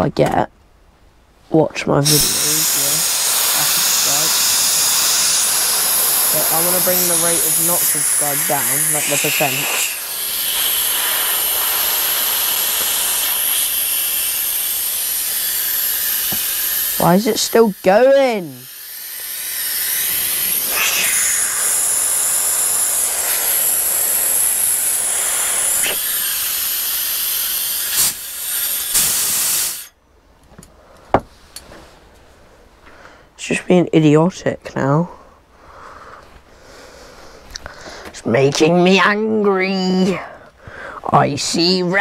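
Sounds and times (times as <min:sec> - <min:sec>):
compressed air hissing: 0:02.0 - 0:29.9.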